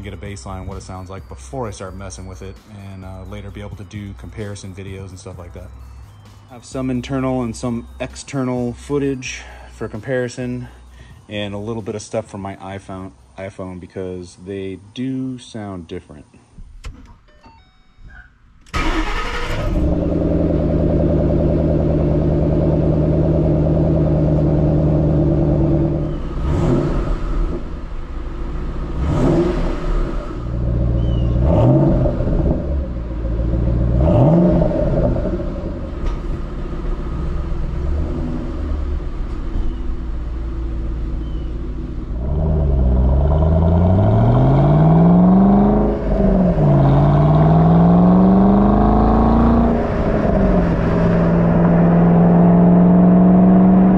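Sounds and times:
car engine starting and idling: 0.0s - 13.4s, 18.2s - 53.9s
car accelerating away: 18.7s - 53.9s
engine revving: 18.7s - 53.9s.

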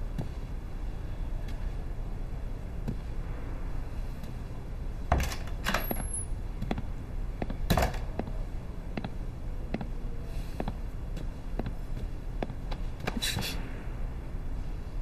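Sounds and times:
door opening clunks and clicks: 5.1s - 6.0s.

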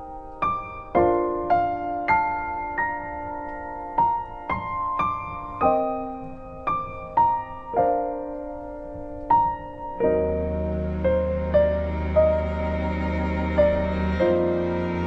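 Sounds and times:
slow gentle piano melody: 0.0s - 15.0s.

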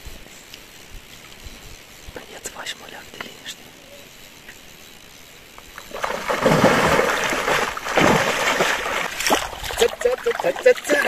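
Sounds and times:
water splashing: 5.8s - 11.0s.

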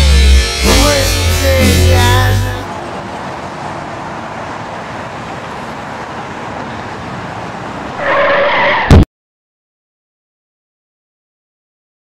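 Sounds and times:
car passing on road: 1.9s - 9.0s.

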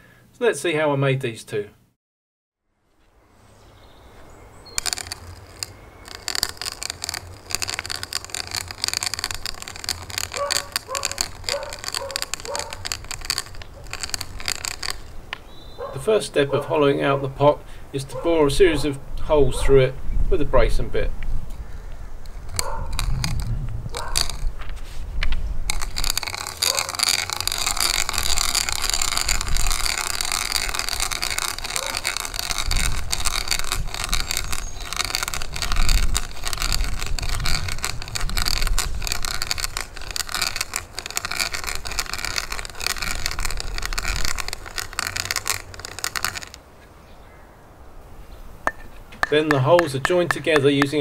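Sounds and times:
wood clicks and crackles: 4.7s - 16.4s, 21.6s - 46.9s, 48.6s - 51.0s
hand drill boring into wood: 4.8s - 15.4s, 22.2s - 24.5s, 25.7s - 46.6s.

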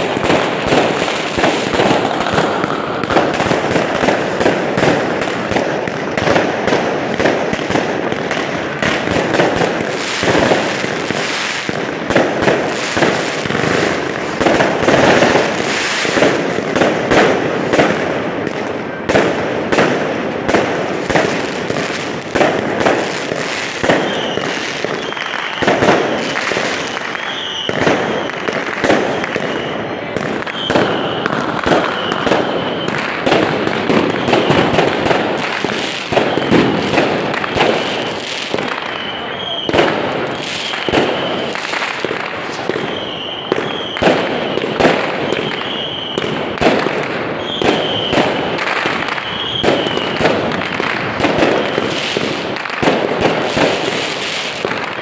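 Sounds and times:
fireworks bangs and crackles: 0.0s - 55.0s
high firework whistle: 21.1s - 55.0s.

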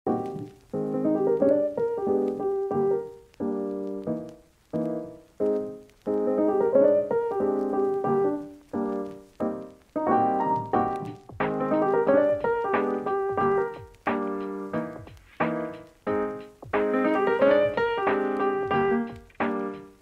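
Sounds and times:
keyboard playing notes and chords: 0.1s - 20.0s.

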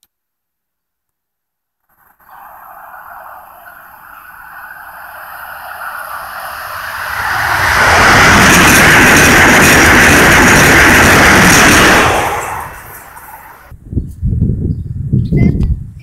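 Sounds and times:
high-speed train passing: 1.8s - 13.8s.

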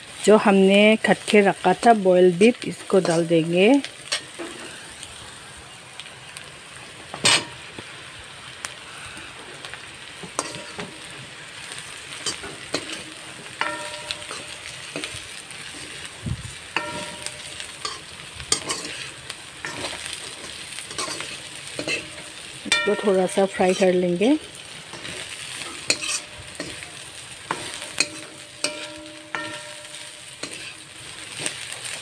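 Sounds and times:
food sizzling in hot oil: 0.0s - 32.0s
spoon scraping a wok: 2.9s - 3.4s, 10.2s - 11.1s, 11.7s - 32.0s
spoon knocking on wok: 13.6s - 15.2s, 16.8s - 18.0s, 22.7s - 23.8s, 27.5s - 30.6s.

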